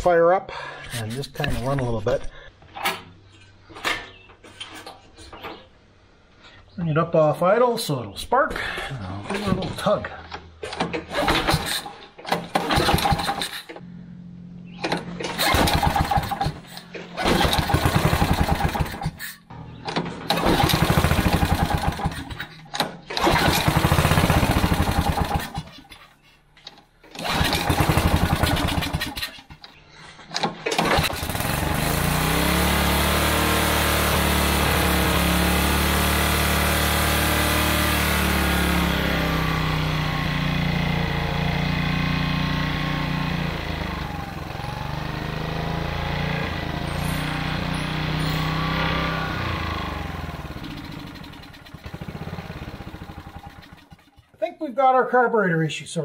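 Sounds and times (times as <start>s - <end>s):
small engine pull-starting: 10.6s - 13.9s, 14.7s - 54.4s
small engine running unevenly: 12.4s - 14.0s, 15.0s - 22.6s, 23.2s - 25.7s, 27.1s - 29.7s, 30.8s - 54.4s.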